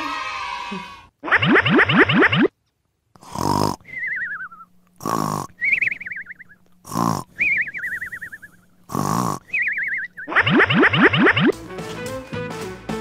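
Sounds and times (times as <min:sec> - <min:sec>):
cartoon snoring snort: 0:03.2 - 0:04.2, 0:05.0 - 0:05.9, 0:06.8 - 0:11.4
falling wavering whistle: 0:05.6 - 0:06.6, 0:07.4 - 0:08.7, 0:09.5 - 0:11.5.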